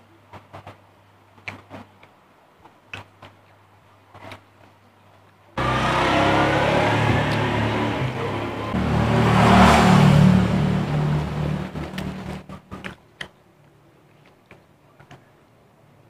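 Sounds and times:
vehicle engine running loudly: 0:05.6 - 0:12.6.

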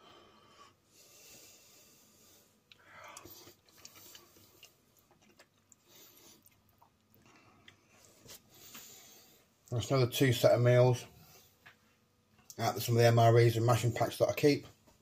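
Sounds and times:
person chewing: 0:02.7 - 0:08.7.

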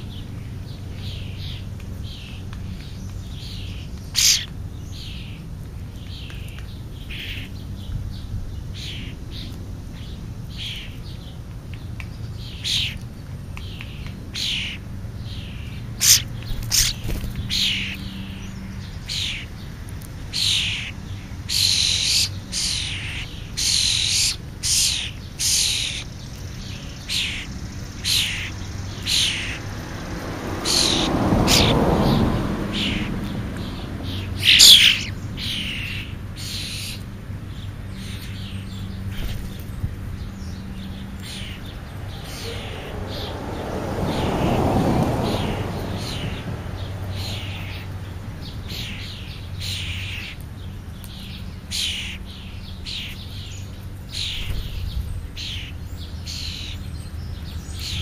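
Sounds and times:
starlings calling harshly: 0:00.0 - 0:58.0.

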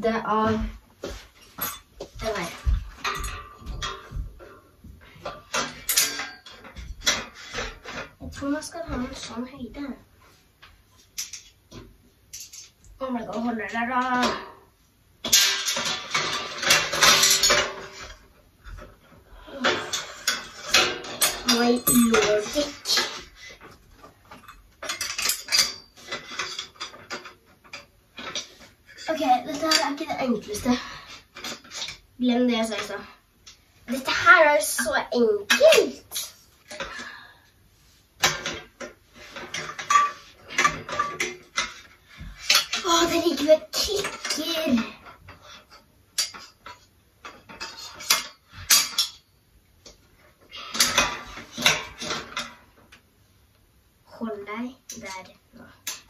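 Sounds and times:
steel parts clinking and knocking: 0:01.4 - 0:04.6, 0:05.2 - 0:09.4, 0:11.2 - 0:12.9, 0:15.2 - 0:33.6, 0:38.2 - 0:50.1, 0:50.7 - 0:52.6
metal cart parts clinking: 0:05.3 - 0:08.1, 0:15.2 - 0:18.2, 0:19.6 - 0:23.2, 0:24.3 - 0:27.4, 0:39.4 - 0:41.8.

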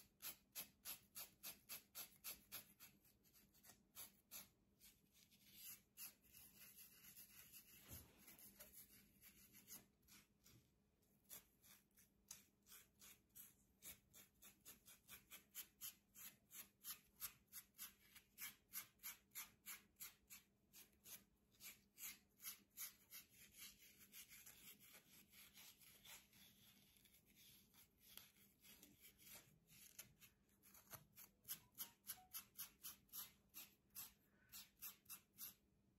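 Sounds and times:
comb scraping scalp: 0:00.0 - 0:10.6, 0:11.2 - 0:35.6.

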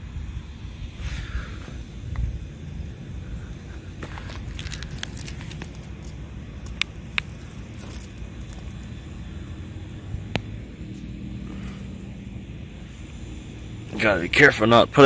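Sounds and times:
low outdoor rumble: 0:00.0 - 0:15.0
metal chain collar clinking: 0:04.3 - 0:09.1, 0:13.8 - 0:14.4.

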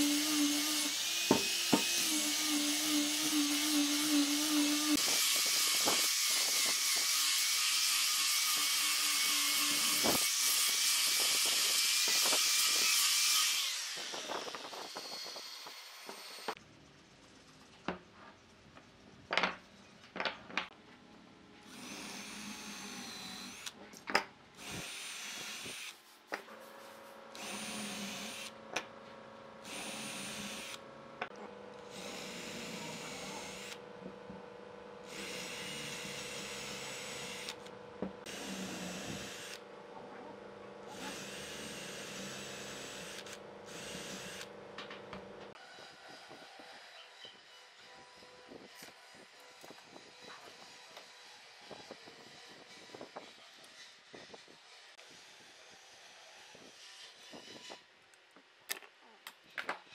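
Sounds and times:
electric drill whining into wood: 0:00.0 - 0:16.6, 0:21.6 - 0:23.8, 0:24.6 - 0:26.0, 0:27.3 - 0:28.9, 0:29.6 - 0:30.8, 0:31.8 - 0:33.9, 0:35.0 - 0:39.7, 0:40.9 - 0:57.8.

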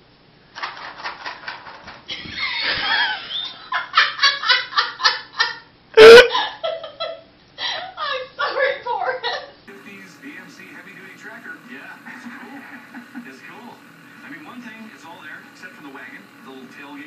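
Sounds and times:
people laughing hard: 0:02.1 - 0:06.5, 0:11.6 - 0:14.2.

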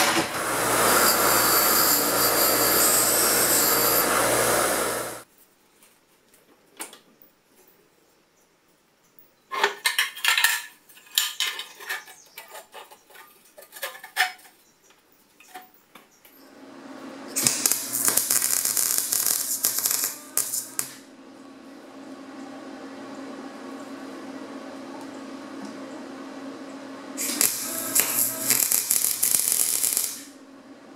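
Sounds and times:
steady hum: 0:00.0 - 0:05.2, 0:16.4 - 0:30.9
welder crackling: 0:00.0 - 0:05.3, 0:17.3 - 0:21.1, 0:27.2 - 0:30.4.

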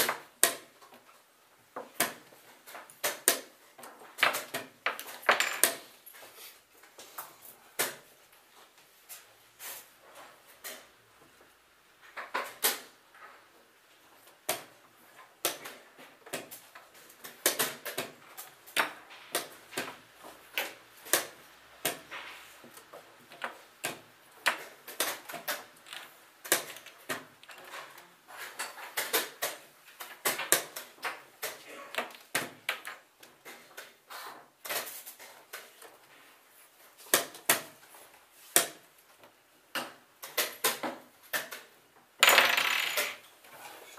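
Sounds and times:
chess pieces knocking on board: 0:39.8 - 0:43.3.

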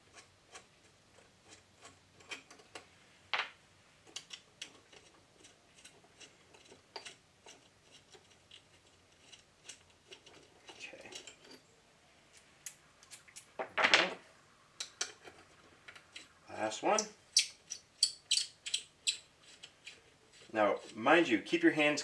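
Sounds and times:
metallic clicks of bolts turning: 0:17.0 - 0:20.0.

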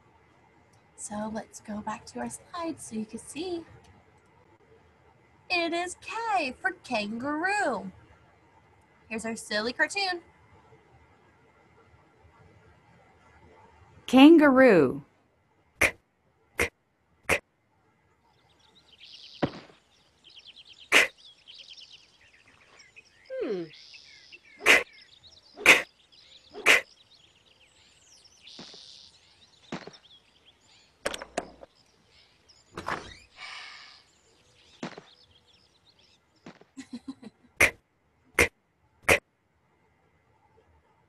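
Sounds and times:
cartoon thwacks and thumps: 0:19.4 - 0:19.7, 0:37.6 - 0:37.8, 0:38.4 - 0:39.2.

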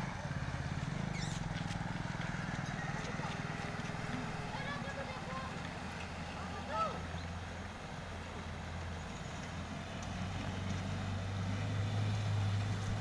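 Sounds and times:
truck engine drone: 0:00.0 - 0:13.0
rushing water: 0:03.1 - 0:13.0.

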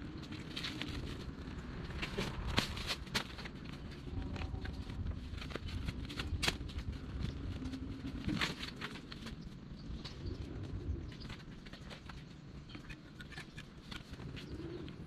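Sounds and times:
steady low rumble: 0:00.0 - 0:15.0
clicks and knocks of straps: 0:00.2 - 0:10.2.

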